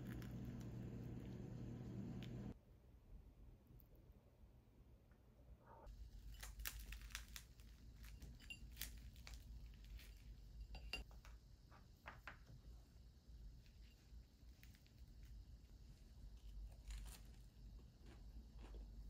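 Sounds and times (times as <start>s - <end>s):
low room hum: 0.0s - 19.0s
bread roll torn apart: 6.1s - 10.3s, 16.5s - 17.5s.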